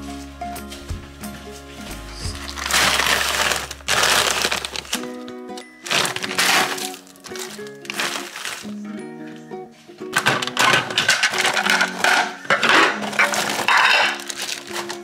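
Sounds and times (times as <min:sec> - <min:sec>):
background music: 0:00.0 - 0:15.0
plastic packaging crinkling: 0:02.4 - 0:08.8, 0:10.1 - 0:15.0.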